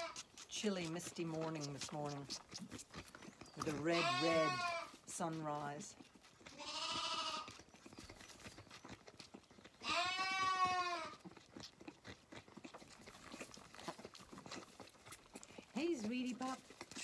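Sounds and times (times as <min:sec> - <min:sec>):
lamb bleating: 0:00.0 - 0:00.2, 0:03.6 - 0:05.0, 0:06.4 - 0:07.6, 0:09.8 - 0:11.3
lamb sucking at feeding bottle: 0:00.0 - 0:17.0.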